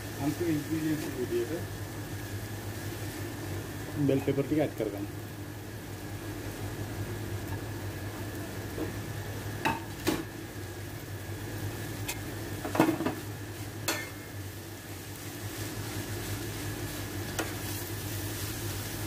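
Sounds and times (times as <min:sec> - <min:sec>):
vegetables sizzling in a pan: 0:00.0 - 0:19.0
metal spoon clinking on pan: 0:13.9 - 0:14.2.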